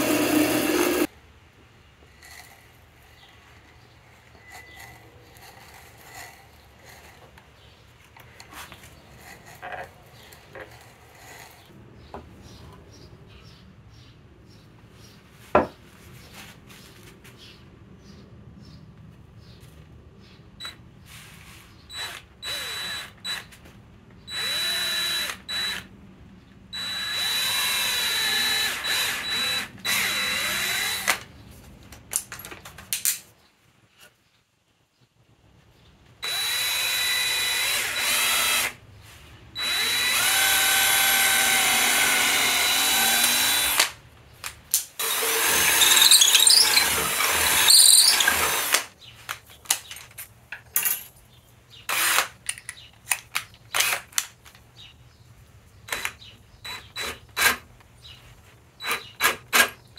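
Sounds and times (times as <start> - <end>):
power drill boring into wood: 0.0 - 1.1, 21.9 - 23.5, 24.3 - 25.9, 26.8 - 31.2, 36.2 - 38.8, 39.6 - 43.9, 45.0 - 48.9, 51.9 - 52.3.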